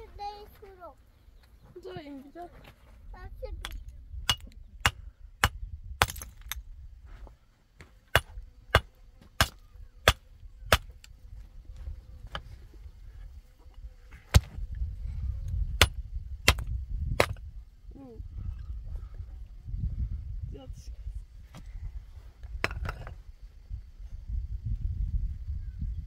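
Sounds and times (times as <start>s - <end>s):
hammer cracking stone: 3.6s - 6.6s, 8.2s - 10.9s.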